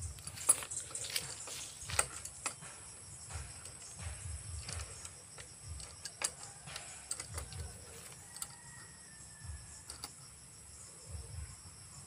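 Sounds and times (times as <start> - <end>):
low thuds: 0.0 - 5.9
insects chirring: 0.0 - 12.0.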